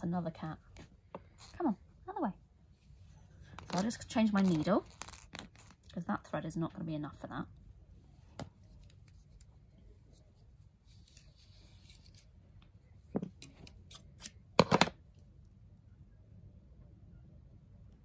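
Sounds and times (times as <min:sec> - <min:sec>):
soft rustle: 0:02.6 - 0:06.0, 0:07.5 - 0:13.8.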